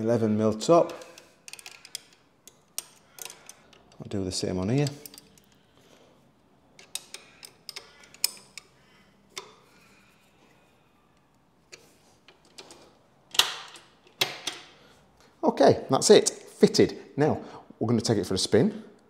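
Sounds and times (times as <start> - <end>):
metal clicks of spanners: 0.8 - 5.8, 6.7 - 9.7.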